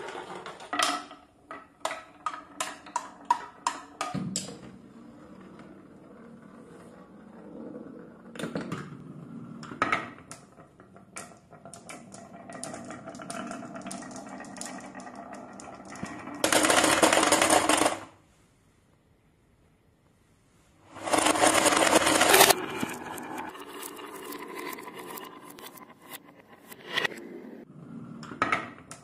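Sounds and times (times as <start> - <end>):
marbles rolling on wooden tracks: 0.0 - 18.2, 20.9 - 27.2
marbles clicking: 11.2 - 18.0, 21.0 - 25.8.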